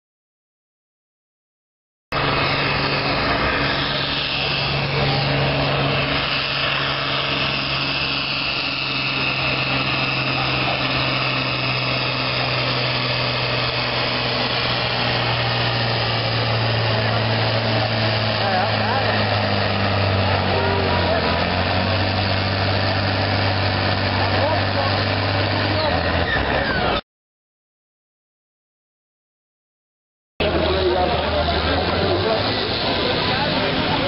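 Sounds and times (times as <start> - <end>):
tractor diesel engine under load: 2.1 - 27.0, 30.4 - 34.0.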